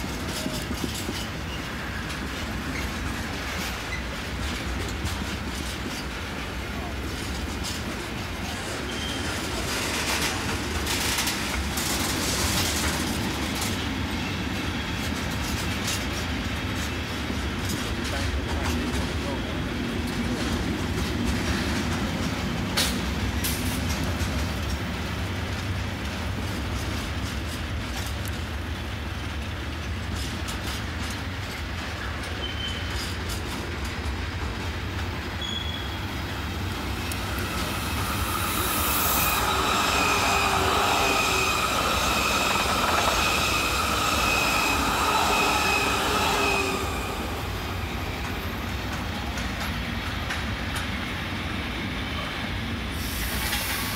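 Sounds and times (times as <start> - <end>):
wheels clicking on rails: 0.0 - 51.2
freight train rumbling past: 0.0 - 53.9
wheels squealing: 32.0 - 33.5, 35.2 - 48.5.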